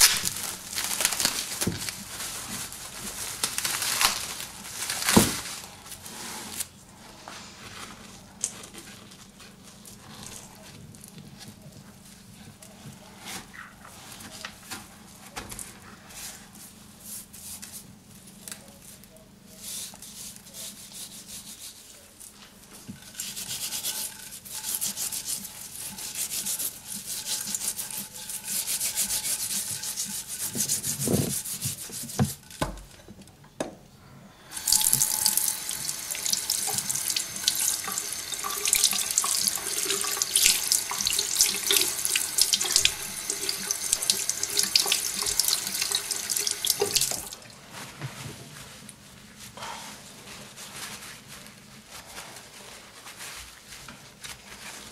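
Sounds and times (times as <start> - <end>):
tap water running into sink: 34.6 - 47.4.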